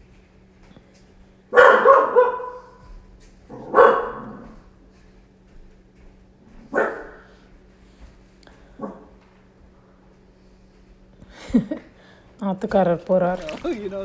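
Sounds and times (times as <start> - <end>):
dog barking: 1.5 - 2.8, 3.5 - 4.6, 6.7 - 7.3, 8.8 - 9.1.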